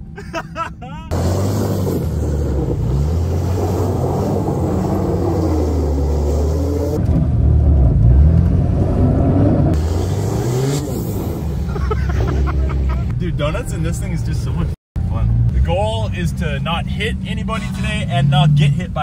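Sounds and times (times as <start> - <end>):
diesel engine revving hard: 1.1 - 12.9, 15.4 - 19.0.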